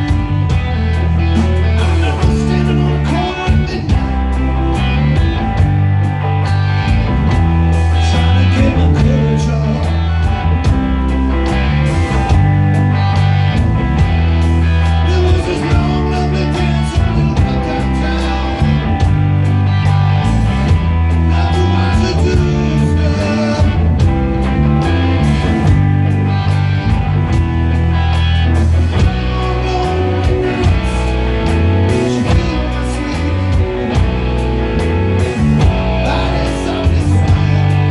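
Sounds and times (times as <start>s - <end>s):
bass guitar: 0.0s - 37.9s
drums: 0.0s - 37.9s
electric guitars: 0.0s - 37.9s.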